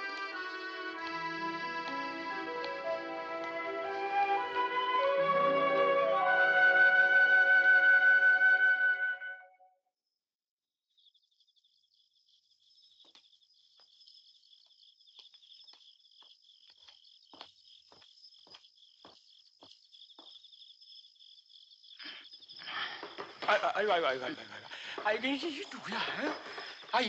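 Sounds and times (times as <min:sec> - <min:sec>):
crickets chirping: 0:00.0 - 0:08.3, 0:10.9 - 0:27.0
footsteps: 0:13.0 - 0:20.6, 0:23.0 - 0:27.0.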